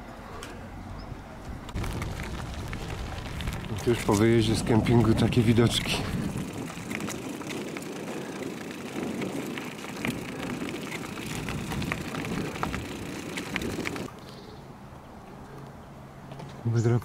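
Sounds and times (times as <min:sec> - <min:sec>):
bicycle tyres crunching gravel: 0:01.5 - 0:14.2.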